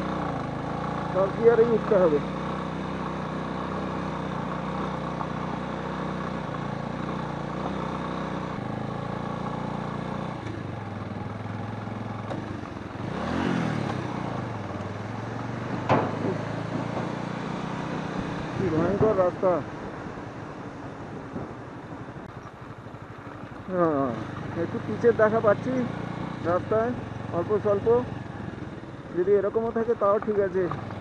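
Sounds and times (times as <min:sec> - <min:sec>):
motorcycle engine running: 0:00.0 - 0:31.0
tyres on gravel: 0:29.7 - 0:31.0.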